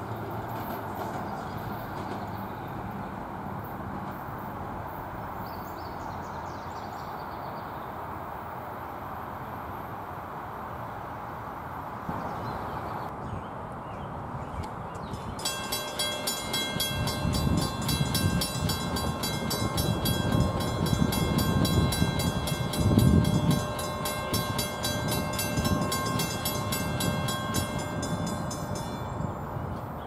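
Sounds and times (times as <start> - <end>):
crossing warning bell ringing: 15.0 - 30.0.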